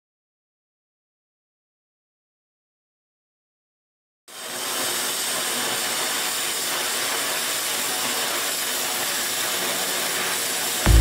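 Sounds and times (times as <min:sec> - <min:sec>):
welding hiss: 0:04.3 - 0:11.0.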